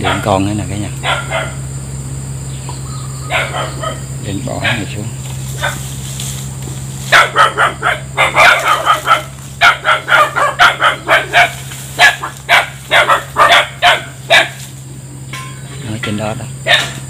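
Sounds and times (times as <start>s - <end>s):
dog barking rapidly: 0.0s - 1.7s, 3.2s - 6.0s, 7.0s - 14.7s, 16.6s - 17.0s
steady low hum: 0.0s - 17.0s.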